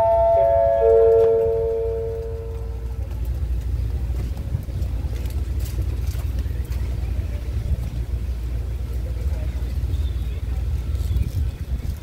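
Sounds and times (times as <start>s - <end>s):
descending public-address chime: 0.0s - 2.8s
steady low rumble: 0.0s - 12.0s.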